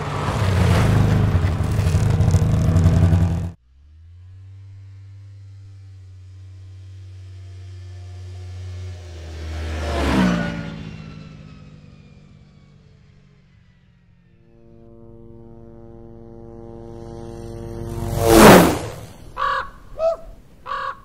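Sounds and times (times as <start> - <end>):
small plane passing low: 0.0 - 21.0
raven cawing: 19.3 - 21.0.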